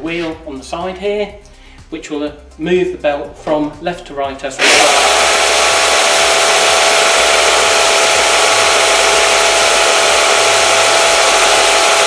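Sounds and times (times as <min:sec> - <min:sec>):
belt sander motor running: 0:04.6 - 0:12.0
steady whine: 0:04.6 - 0:12.0.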